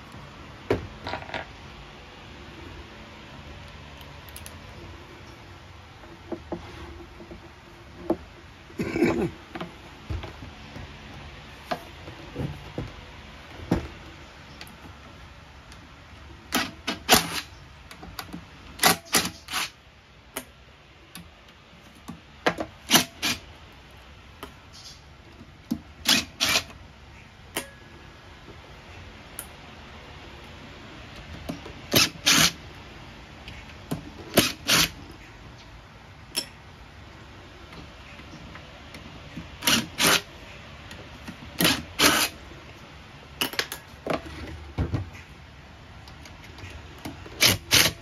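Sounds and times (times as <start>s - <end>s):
cordless driver bursts: 26.0s - 26.7s.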